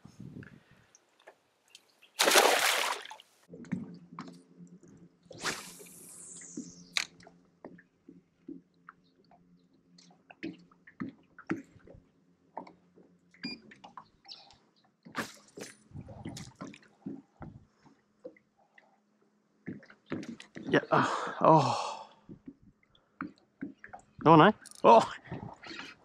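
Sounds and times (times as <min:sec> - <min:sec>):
water splashing around boat: 0:02.2 - 0:03.5
knocks and clicks on boat: 0:10.0 - 0:15.2, 0:19.6 - 0:20.8.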